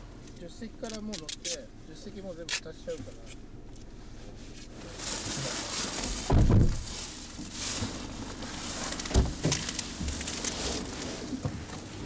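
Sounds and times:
rustling and handling noises: 0.2 - 12.0
heavy thump: 6.1 - 8.0, 9.1 - 10.2.

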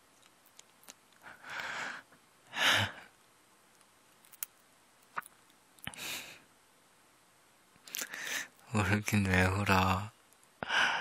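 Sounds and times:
man breathing: 1.2 - 3.1, 5.9 - 6.5, 7.9 - 8.6, 10.6 - 11.0.

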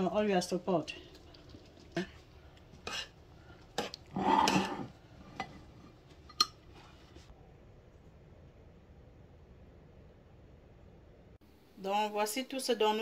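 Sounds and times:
utensils clinking on cookware: 3.8 - 6.6.

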